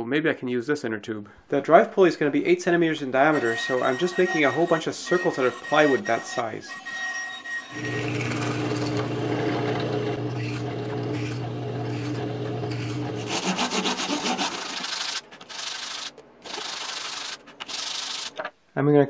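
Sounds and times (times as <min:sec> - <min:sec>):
wood rubbing on sandpaper: 0:03.3 - 0:06.8, 0:11.2 - 0:18.4
drill press motor humming: 0:07.7 - 0:13.4.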